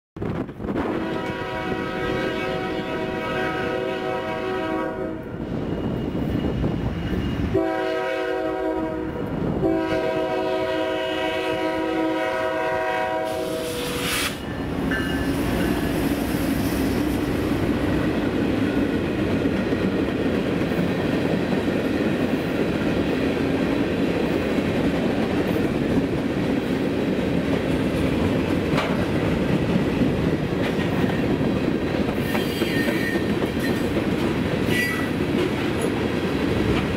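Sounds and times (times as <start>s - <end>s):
train rumble and wheel clatter: 0.2s - 36.9s
locomotive air horn blasts: 0.8s - 5.4s, 7.5s - 14.4s, 34.7s - 35.2s.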